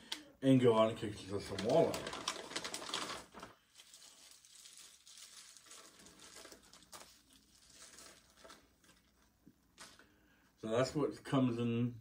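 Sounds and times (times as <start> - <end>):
plastic bags rustling and crinkling: 1.1 - 10.1.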